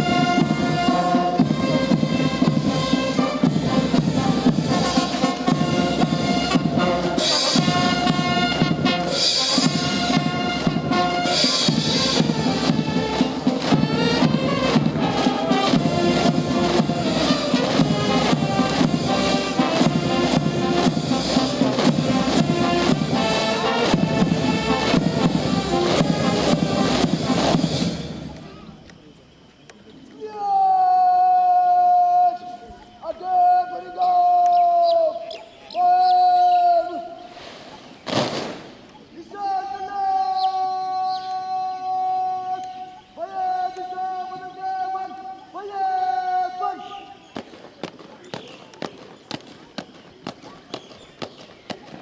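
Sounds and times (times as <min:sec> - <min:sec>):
steady drum beat: 0:00.0 - 0:28.4
brass band playing a march: 0:00.0 - 0:28.5.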